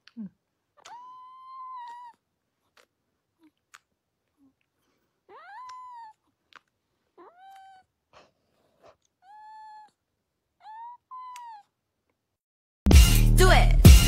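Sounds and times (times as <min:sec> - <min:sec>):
cat meowing: 0:00.8 - 0:02.2, 0:05.3 - 0:06.2, 0:07.2 - 0:07.9, 0:09.2 - 0:10.0, 0:10.6 - 0:11.7.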